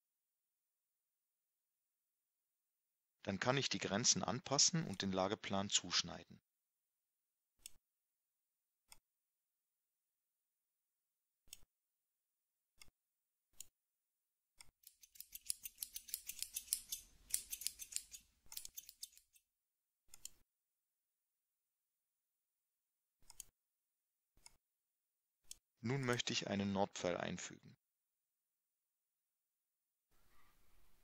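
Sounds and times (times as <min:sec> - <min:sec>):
computer mouse clicking: 0:23.2 - 0:23.5.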